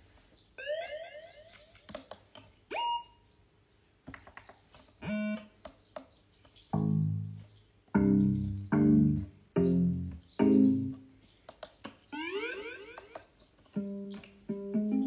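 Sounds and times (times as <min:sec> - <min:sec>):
rising synthesizer chirps: 0:12.1 - 0:13.0.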